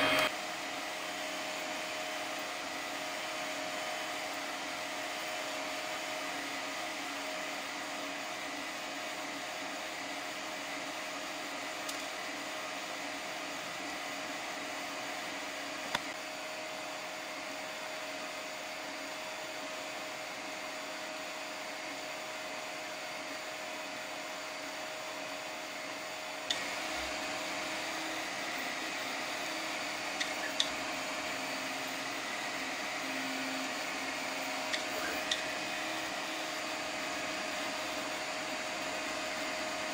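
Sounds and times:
three d printer whirring: 0.0s - 0.3s, 25.8s - 39.9s.

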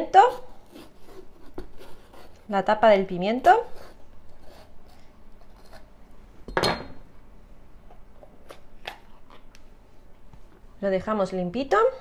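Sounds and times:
knife cutting pepper on board: 0.2s - 2.4s.

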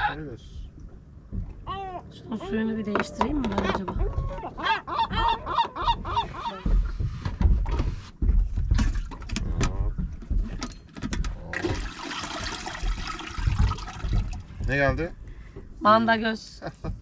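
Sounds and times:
gear knocking and thumping: 3.2s - 12.0s, 12.6s - 15.8s
water splashing and pouring: 11.5s - 14.9s.

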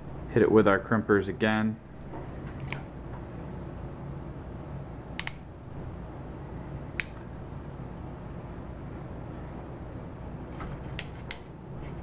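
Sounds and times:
steady low hum: 0.0s - 12.0s
crimping tool clicks: 5.2s - 5.4s.

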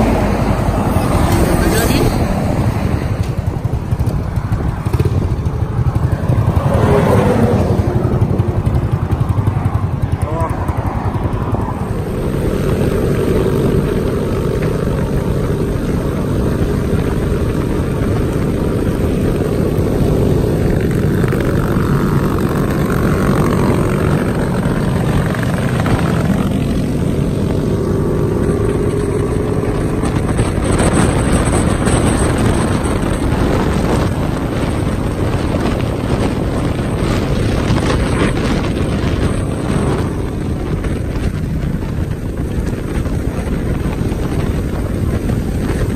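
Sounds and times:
motorcycle engines droning: 0.0s - 45.9s
wind rushing over microphone: 0.0s - 45.9s.

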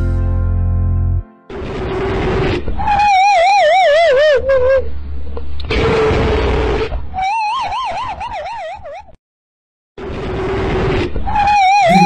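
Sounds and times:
warbling siren: 11.7s - 12.0s.

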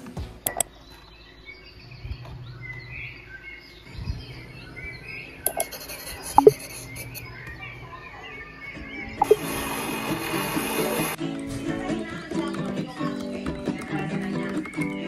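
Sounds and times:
birds chirping: 0.2s - 10.3s
faint low hum: 0.4s - 9.5s
sharp clicks: 0.5s - 0.7s, 5.4s - 5.8s, 6.4s - 6.6s.

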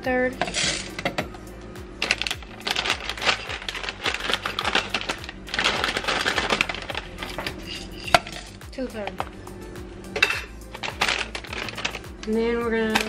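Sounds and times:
granola rattling into plastic cup: 2.0s - 8.6s, 10.8s - 12.1s
plastic bag rustling: 2.0s - 8.6s, 10.2s - 12.2s.

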